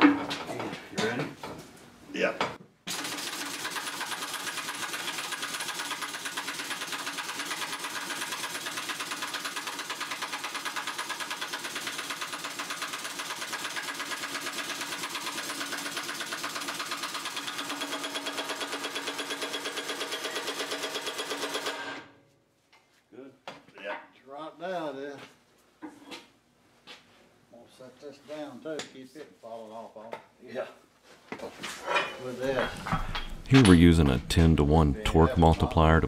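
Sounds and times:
impact wrench hammering: 0:02.9 - 0:21.8, 0:32.7 - 0:33.7.

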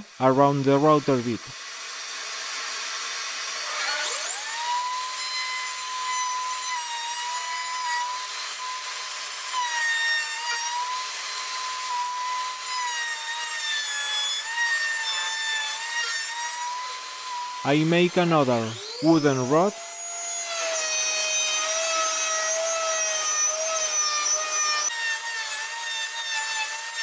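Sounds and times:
router motor whining: 0:00.0 - 0:27.0
dust vacuum hissing: 0:15.8 - 0:20.0.

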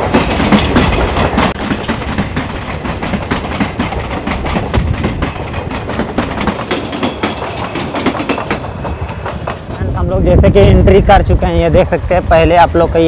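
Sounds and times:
train wheels clattering on rails: 0:00.0 - 0:11.0
train rumble: 0:00.0 - 0:13.0.

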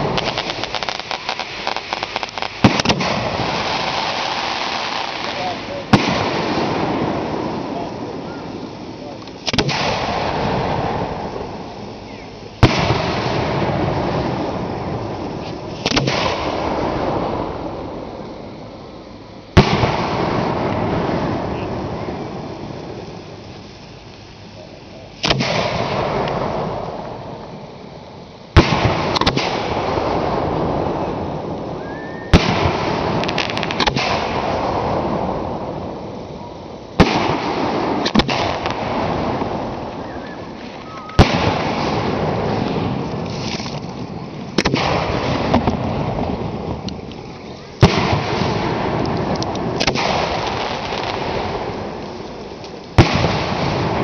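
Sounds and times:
fireworks bangs: 0:00.0 - 0:54.0
fireworks crackling: 0:00.0 - 0:54.0
fireworks rumble: 0:00.0 - 0:54.0
rising whistle: 0:31.8 - 0:32.4, 0:40.0 - 0:41.2.

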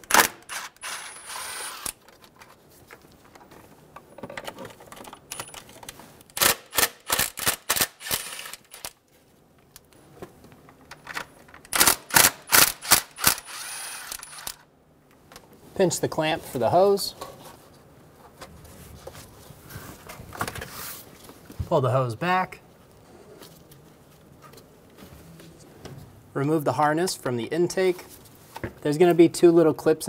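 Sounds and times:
cordless ratchet whirring: 0:00.1 - 0:02.0, 0:07.1 - 0:08.9, 0:11.8 - 0:14.6
ratchet clicking: 0:11.7 - 0:14.6.

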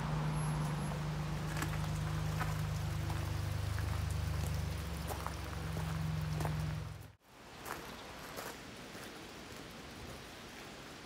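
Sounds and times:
low steady hum: 0:00.0 - 0:07.2
river water hissing: 0:00.0 - 0:11.0.

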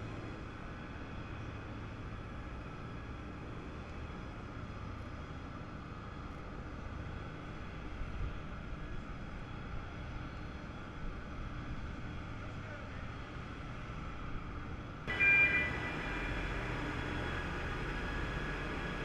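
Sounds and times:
heavy transporter rumbling: 0:15.1 - 0:19.0.

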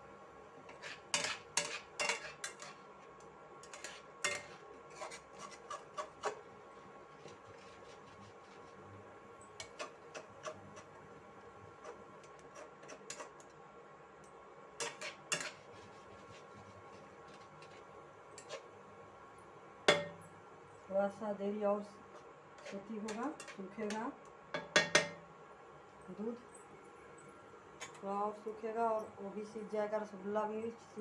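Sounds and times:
utensils scraping a metal pan: 0:00.7 - 0:02.8, 0:03.6 - 0:06.4, 0:11.8 - 0:13.4, 0:14.8 - 0:18.6, 0:22.6 - 0:23.7.

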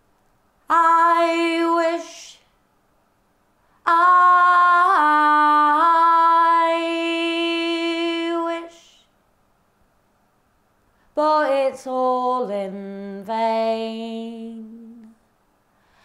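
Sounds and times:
woman singing unaccompanied: 0:00.6 - 0:02.6, 0:03.8 - 0:09.1, 0:11.1 - 0:15.2.

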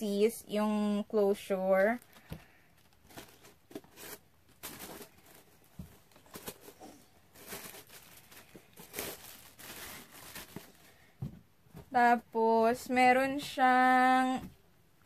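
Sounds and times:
paper rustling and crinkling: 0:01.6 - 0:11.0.

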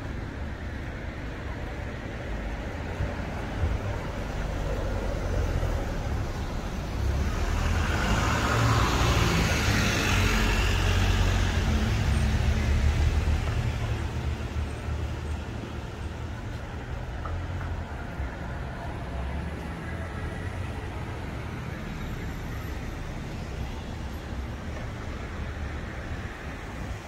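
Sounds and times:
low traffic rumble: 0:00.0 - 0:27.0
car passing by: 0:04.3 - 0:14.4.

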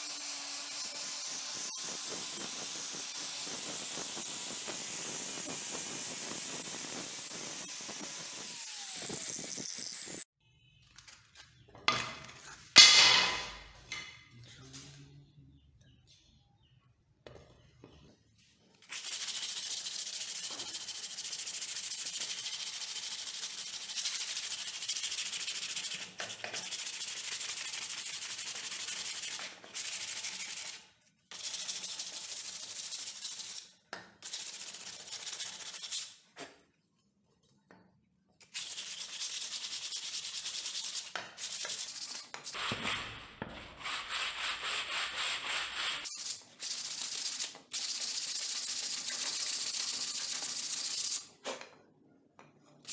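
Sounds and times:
sandpaper rubbing on wood: 0:00.0 - 0:10.2, 0:18.9 - 0:33.6, 0:34.2 - 0:36.2, 0:38.5 - 0:43.0, 0:43.7 - 0:51.3.

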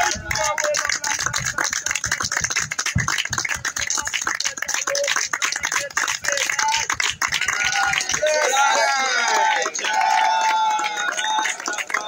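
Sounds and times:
group clapping in rhythm: 0:00.0 - 0:12.0
group chanting: 0:07.5 - 0:12.0.

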